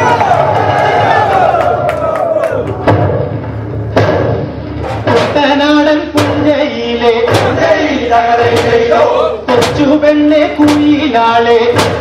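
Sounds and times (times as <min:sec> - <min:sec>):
sharp percussive strikes: 0:02.7 - 0:06.6, 0:07.2 - 0:11.1, 0:11.7 - 0:12.0
person singing over a beat: 0:05.0 - 0:12.0.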